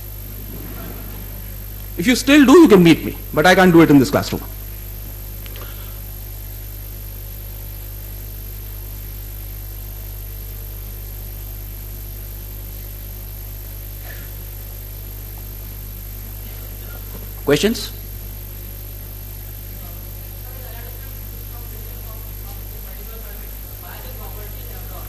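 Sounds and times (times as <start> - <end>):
faint short sound: 0.0 - 3.2
low electrical hum: 0.0 - 25.0.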